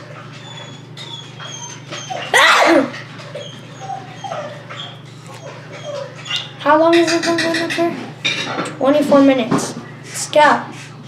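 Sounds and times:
dog whining: 0.0s - 7.4s
dog yelp: 0.1s - 6.7s.

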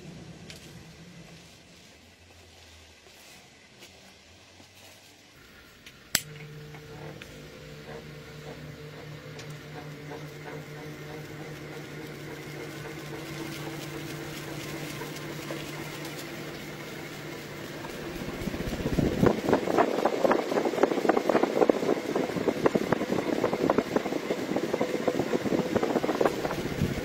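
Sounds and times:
electric motor humming: 5.4s - 27.0s
rotor blades swishing: 6.2s - 27.0s.

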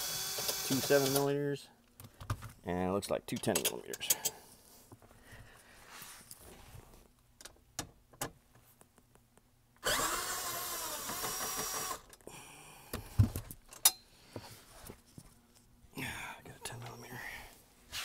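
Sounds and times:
cordless impact gun running: 0.0s - 1.3s, 9.8s - 12.0s.

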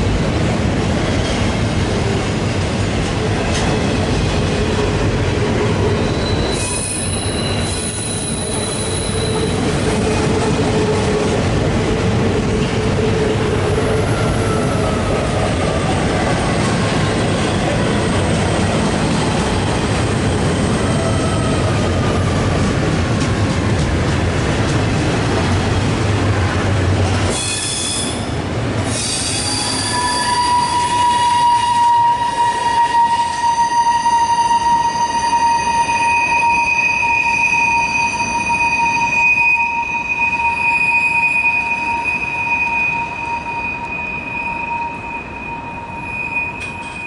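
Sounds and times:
freight train rumbling past: 0.0s - 37.4s
train wheels squealing: 5.7s - 11.1s, 27.3s - 47.0s.

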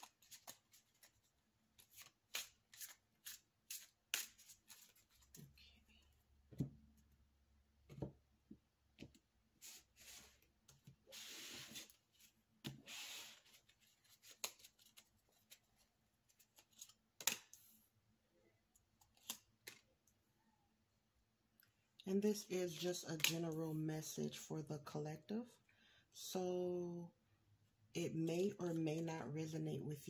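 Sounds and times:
cards sliding rustle: 0.0s - 5.5s, 9.6s - 15.7s.

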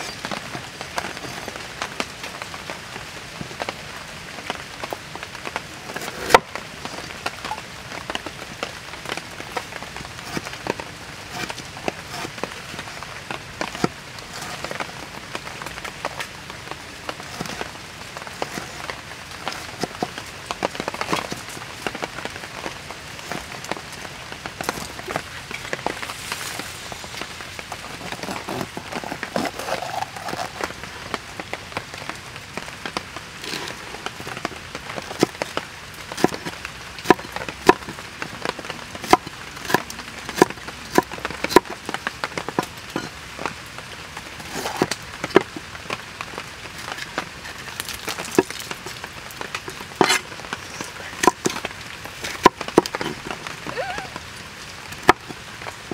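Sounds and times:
steady hiss: 22.7s - 29.4s
knife chopping on wooden board: 37.1s - 37.9s, 50.0s - 50.2s.

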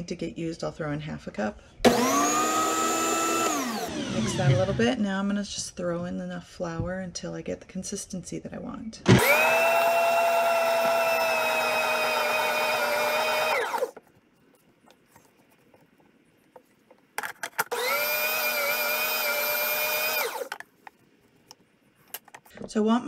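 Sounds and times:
food processor motor whine: 1.9s - 4.9s, 9.1s - 14.0s, 17.7s - 20.6s.

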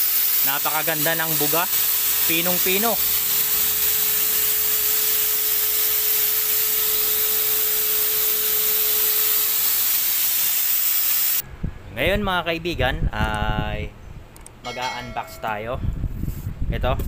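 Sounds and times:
thin steady whine: 0.0s - 10.1s, 14.6s - 15.8s
paint sprayer rushing air: 0.0s - 11.4s.

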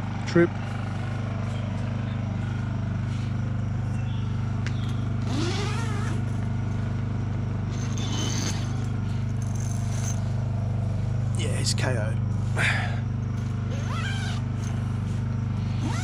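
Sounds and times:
vehicle engine droning: 0.0s - 16.0s.

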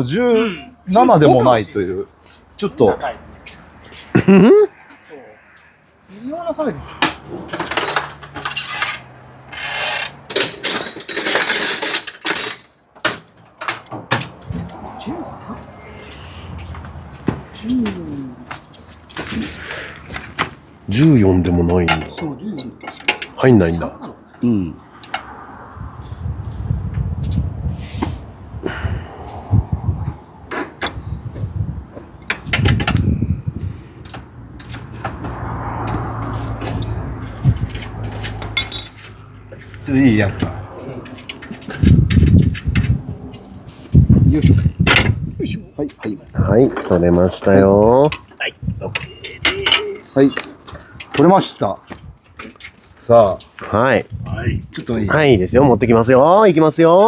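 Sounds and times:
metal tools clinking: 7.0s - 14.0s, 21.0s - 24.4s, 35.9s - 42.9s, 46.6s - 53.7s
wrench on fasteners: 7.6s - 13.2s
ratchet clicking: 8.3s - 11.8s.

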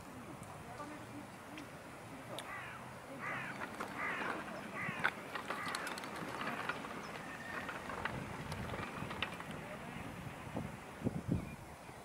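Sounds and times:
bird harsh calls: 2.4s - 7.8s
faint clicks and ticks: 3.5s - 9.8s.

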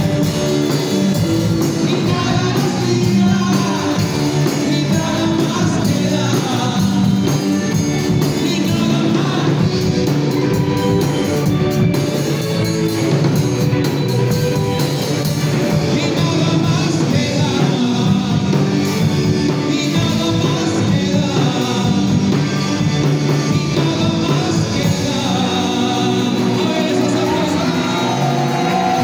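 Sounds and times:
drum kit: 0.0s - 29.0s
electric bass: 0.0s - 29.0s
electric guitar: 0.0s - 29.0s
man singing into a microphone: 1.6s - 10.0s, 15.7s - 29.0s.

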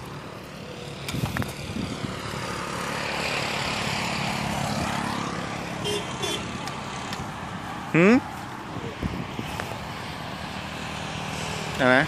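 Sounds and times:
vehicle passing by: 0.0s - 12.0s.

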